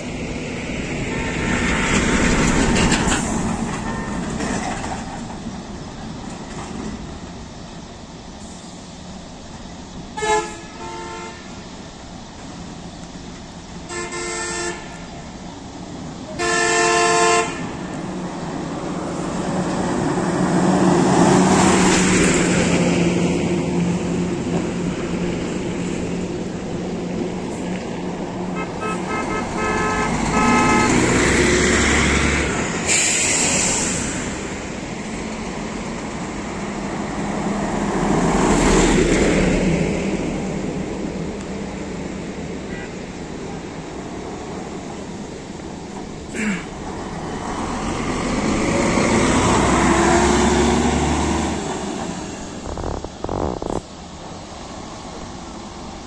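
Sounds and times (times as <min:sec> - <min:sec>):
heavy engines passing: 0:00.0 - 0:56.0
bus horn blasts: 0:10.2 - 0:11.6, 0:13.9 - 0:15.1, 0:16.3 - 0:17.9, 0:28.5 - 0:31.2, 0:42.7 - 0:43.0.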